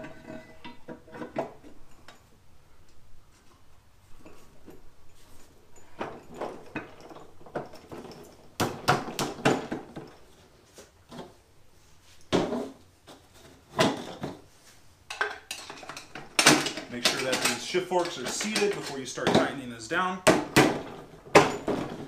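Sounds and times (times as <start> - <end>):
metal parts clinking and knocking: 15.1 - 19.9, 20.5 - 22.0.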